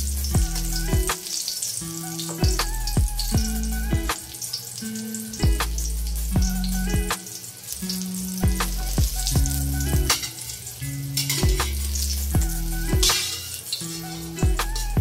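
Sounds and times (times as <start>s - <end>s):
background music with bass: 0.0s - 1.2s, 1.8s - 4.2s, 5.4s - 7.2s, 7.8s - 15.0s
omelette sizzling in hot oil: 0.0s - 15.0s
kick drum beat: 0.3s - 1.2s, 2.4s - 4.2s, 5.4s - 5.8s, 6.4s - 7.2s, 8.4s - 10.2s, 11.4s - 11.8s, 12.4s - 13.1s, 14.4s - 15.0s.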